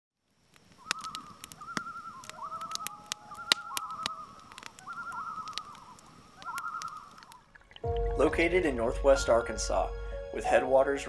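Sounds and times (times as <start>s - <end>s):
sharp clicks or crackles: 0.4s - 7.4s
wavering trilling animal calls: 0.7s - 7.8s.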